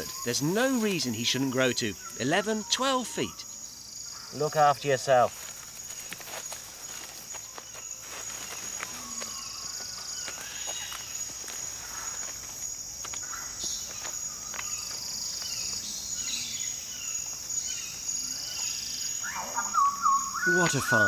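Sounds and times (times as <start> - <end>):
insects shrilling: 0.0 - 21.0
rustles in leaf litter: 4.6 - 15.5.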